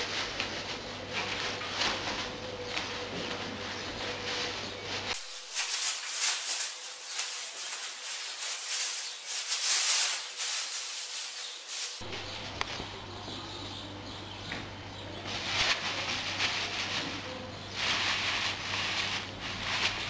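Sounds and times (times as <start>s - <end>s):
plastic bag crinkling: 5.0s - 12.0s.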